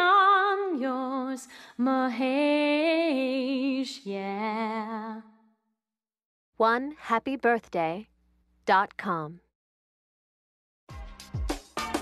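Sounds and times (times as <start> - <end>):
woman singing with vibrato: 0.0 - 5.5.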